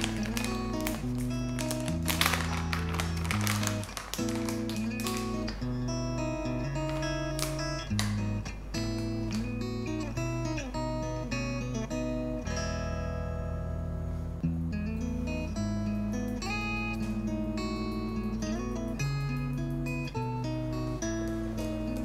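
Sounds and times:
guitar music: 0.0 - 22.0.

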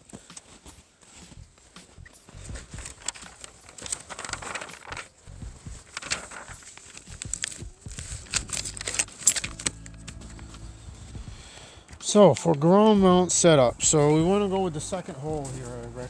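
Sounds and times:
paper pages rustling: 0.1 - 12.8, 15.0 - 16.0.

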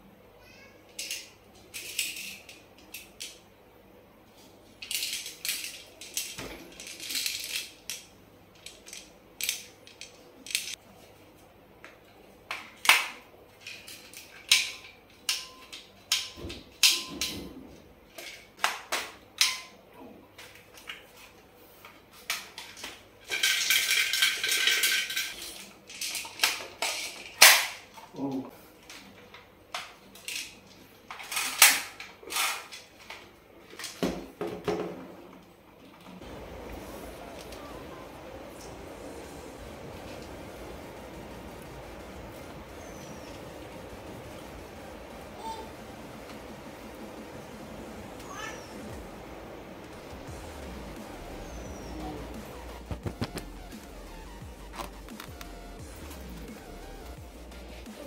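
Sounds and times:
plastic toy rifle clicks and rattles: 4.8 - 10.8, 22.3 - 28.3, 28.9 - 34.0.

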